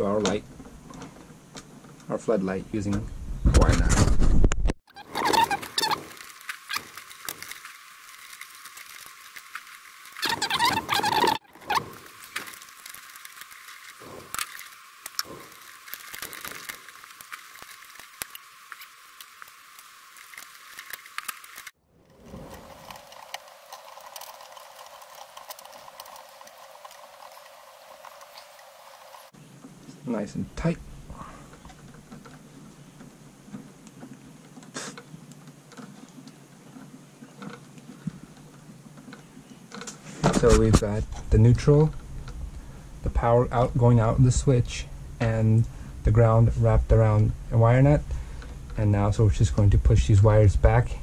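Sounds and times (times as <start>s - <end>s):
small clicks and scrapes: 2.8s - 30.0s, 31.5s - 42.6s
copper wires being twisted: 3.8s - 29.2s.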